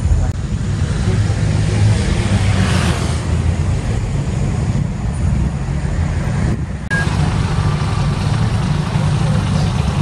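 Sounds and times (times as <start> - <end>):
traffic rumble: 0.0 - 10.0
vehicle passing by: 0.5 - 4.1.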